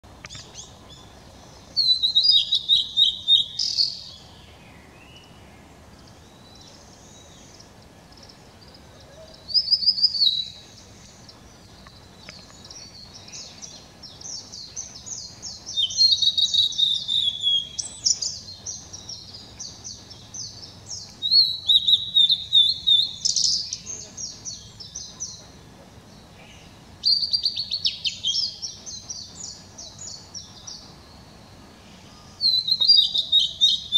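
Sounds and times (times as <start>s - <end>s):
bird singing warbled phrases: 0.0s - 33.9s.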